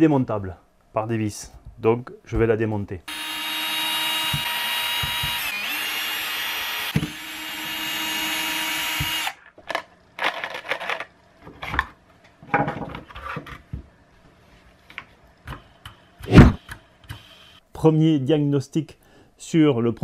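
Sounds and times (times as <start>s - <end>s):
cordless drill motor whine: 3.1s - 9.4s.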